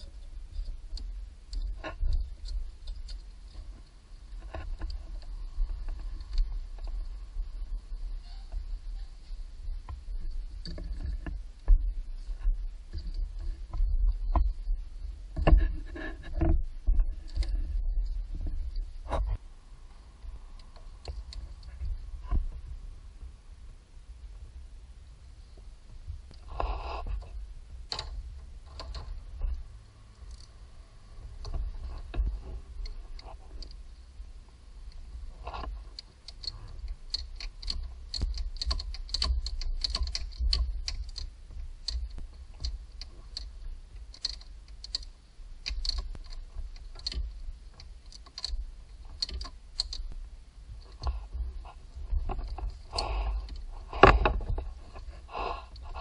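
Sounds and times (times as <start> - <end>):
low rumble: 0.0 - 38.6
tools clicking on engine parts: 35.6 - 50.2.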